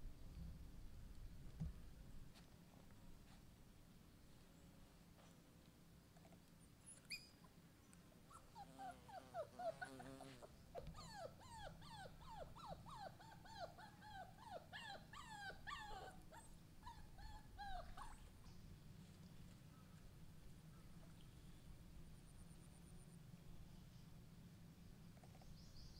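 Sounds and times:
puppy whimpering: 0:08.3 - 0:18.3.

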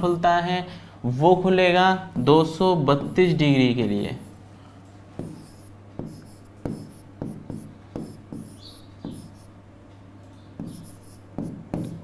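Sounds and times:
steady low hum: 0:00.0 - 0:12.0
pen writing on a board: 0:05.2 - 0:09.5, 0:10.6 - 0:12.0.

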